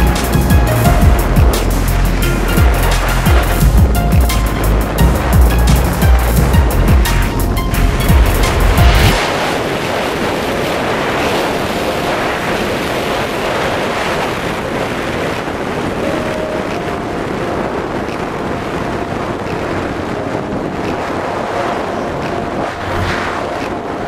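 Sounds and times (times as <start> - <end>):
motorcycle engine running: 0.0 - 8.9
wind buffeting microphone: 0.0 - 24.0.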